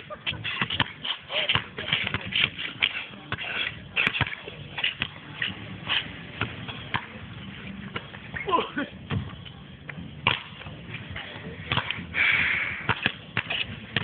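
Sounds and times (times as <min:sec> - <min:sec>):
basketball bouncing on court: 0:00.6 - 0:02.6, 0:11.7 - 0:12.0, 0:12.9 - 0:14.0.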